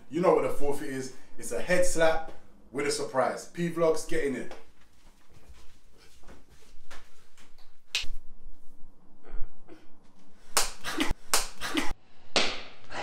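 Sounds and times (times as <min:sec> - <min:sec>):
hand slapping a head: 0:06.9 - 0:08.2, 0:10.5 - 0:12.8.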